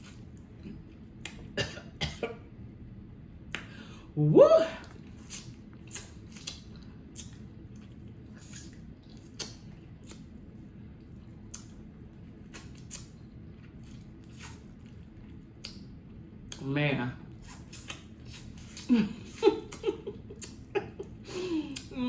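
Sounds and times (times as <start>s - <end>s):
eating crab legs: 4.8s - 16.6s.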